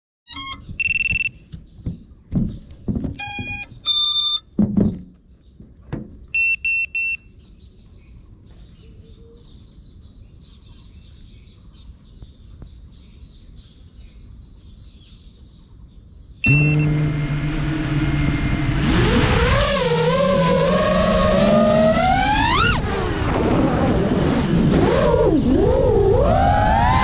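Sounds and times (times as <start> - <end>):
short high electronic beeps: 0.3 - 1.4, 3.2 - 4.4, 6.4 - 7.3, 16.4 - 17.0
drone motors humming: 16.4 - 27.0.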